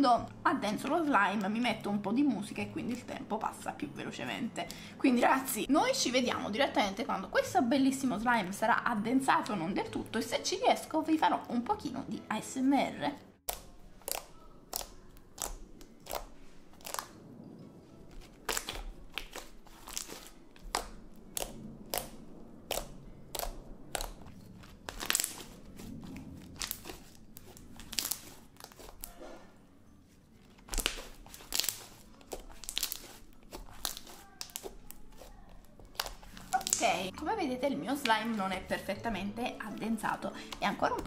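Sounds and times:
slime squelching wet pops: 0:18.2 - 0:25.9, 0:26.5 - 0:29.2, 0:30.7 - 0:37.1.

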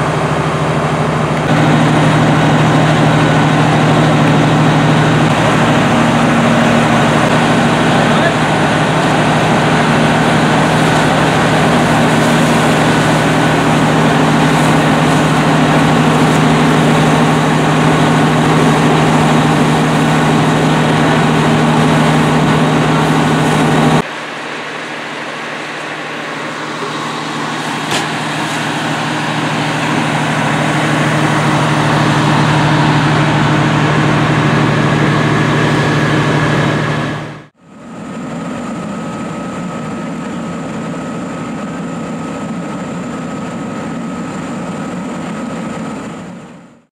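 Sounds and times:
diesel engine running: 0:00.0 - 0:46.9
hose stream hissing: 0:01.4 - 0:37.2.

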